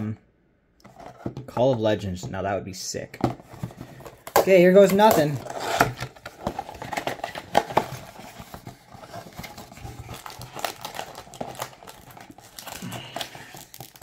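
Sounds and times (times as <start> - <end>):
packaging crinkling and scraping: 3.2 - 14.0.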